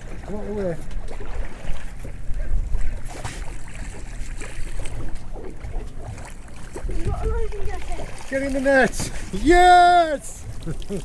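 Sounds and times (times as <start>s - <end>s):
water against boat hull: 0.0s - 11.0s
wind rumbling on microphone: 1.2s - 8.3s.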